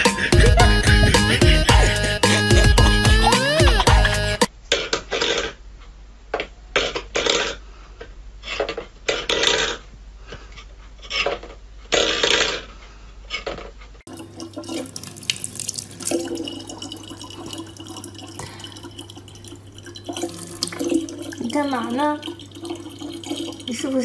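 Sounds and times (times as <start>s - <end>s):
tap water running into bottle: 14.1s - 24.0s.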